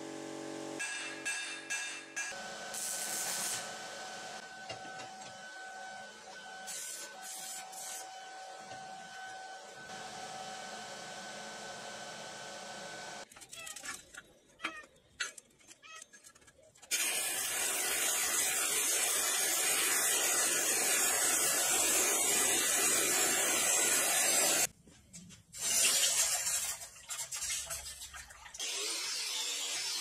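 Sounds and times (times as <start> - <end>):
forge air blast hissing: 6.6 - 8.1, 16.9 - 24.7.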